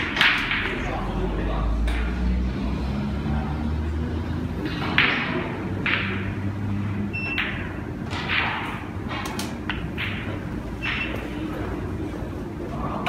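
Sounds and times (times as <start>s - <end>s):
snooker balls clicking: 0.0s - 1.0s, 4.6s - 6.5s, 7.2s - 11.9s.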